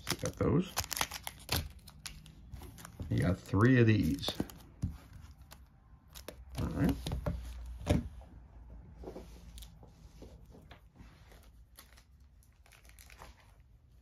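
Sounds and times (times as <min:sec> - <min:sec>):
plastic wrap crinkling: 0:00.0 - 0:07.0, 0:11.2 - 0:13.9.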